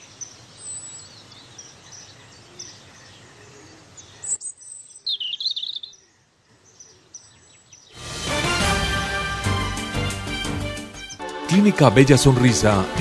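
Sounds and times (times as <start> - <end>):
birds chirping: 0.0 - 8.0, 9.9 - 11.4.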